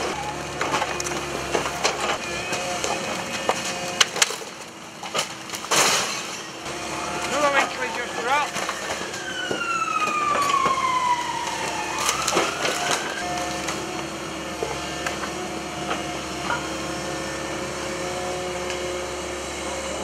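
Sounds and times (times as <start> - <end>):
falling debris knocks: 0.0 - 6.5, 7.2 - 13.9
masonry crashing and timber splintering: 0.0 - 18.6
excavator running: 0.0 - 20.0
excavator whine: 0.0 - 20.0.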